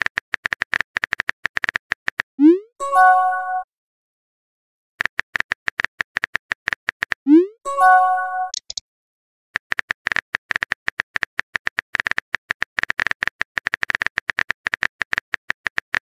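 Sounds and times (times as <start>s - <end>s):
phone keyboard typing clicks: 8.5s - 8.8s, 9.6s - 16.0s.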